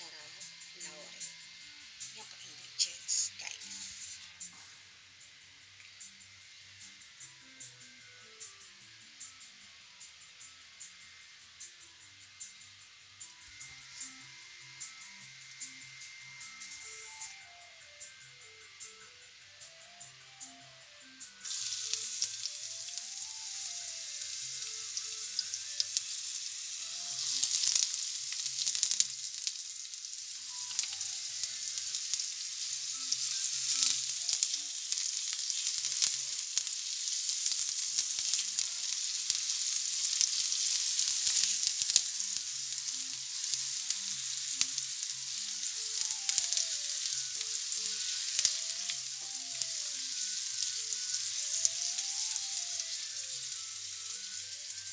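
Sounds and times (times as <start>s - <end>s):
onion sizzling in a frying pan: 0.0s - 4.4s, 21.4s - 54.9s
spatula clicking and scraping: 30.4s - 49.2s.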